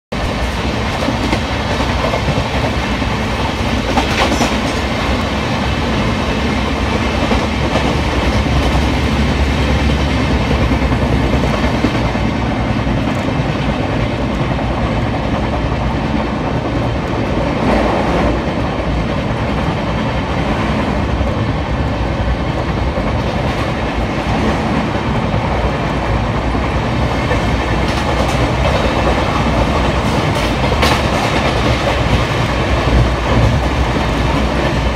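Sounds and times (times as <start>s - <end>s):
train wheels clattering over rail joints: 0.4s - 5.3s, 22.8s - 34.9s.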